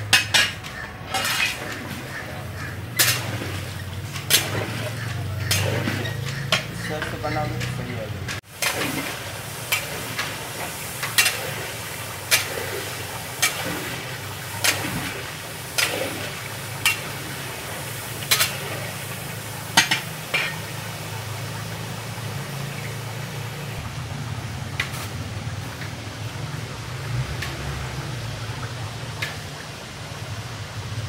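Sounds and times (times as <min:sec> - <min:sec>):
metal stirrer scraping a pot: 0:00.0 - 0:08.8
sizzling hiss: 0:00.0 - 0:28.4.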